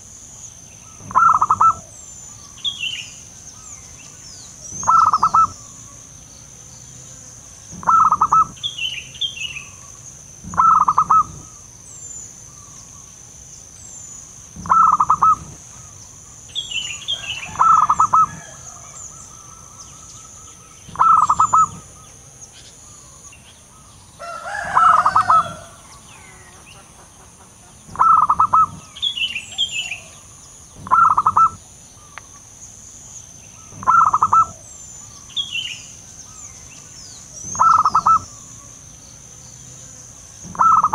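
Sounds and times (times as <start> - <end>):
small birds chirping: 0.0 - 40.9
dove stuttering coo: 1.0 - 2.0, 4.7 - 5.6, 7.7 - 8.6, 10.4 - 11.5, 14.6 - 15.6, 17.4 - 18.6, 20.9 - 22.0, 27.9 - 29.0, 30.8 - 31.6, 33.7 - 34.7, 37.4 - 38.3, 40.4 - 40.9.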